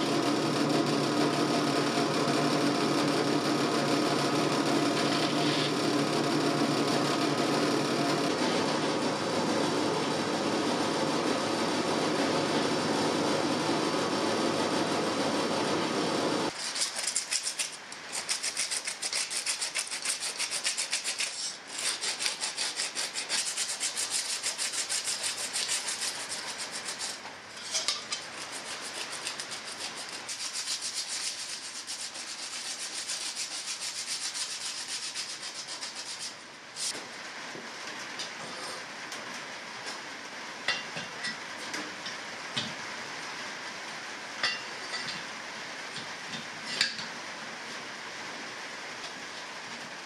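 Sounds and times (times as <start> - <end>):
machine hum: 0.0 - 16.5.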